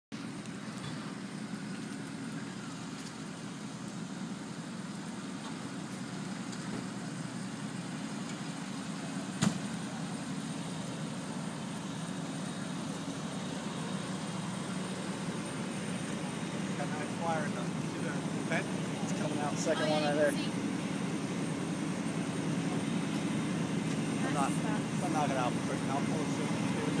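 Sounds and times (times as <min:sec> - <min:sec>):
fire engines idling: 0:00.1 - 0:27.0.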